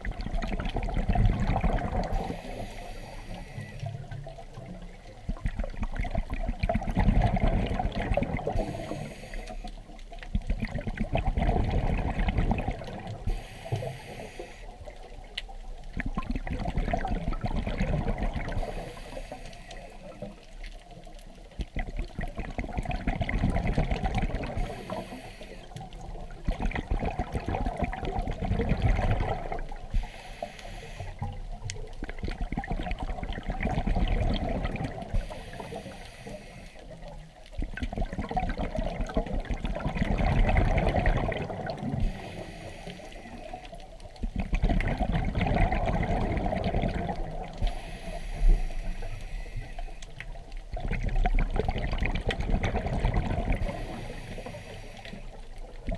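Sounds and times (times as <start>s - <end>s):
bubbling exhale underwater: 0.0s - 9.4s, 10.4s - 14.4s, 15.9s - 19.2s, 21.7s - 30.1s, 31.2s - 36.1s, 36.9s - 42.5s, 44.2s - 49.1s, 50.2s - 55.9s
hissing regulator inhale: 2.1s - 4.1s, 8.5s - 9.9s, 13.2s - 14.9s, 18.5s - 20.4s, 24.5s - 26.0s, 29.9s - 31.4s, 35.1s - 37.2s, 41.9s - 43.8s, 47.5s - 50.2s, 53.6s - 55.4s.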